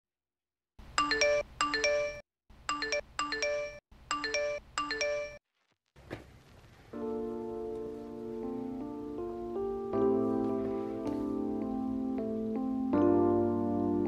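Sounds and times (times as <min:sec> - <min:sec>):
bright ringing jingle: 0:01.0 - 0:05.4.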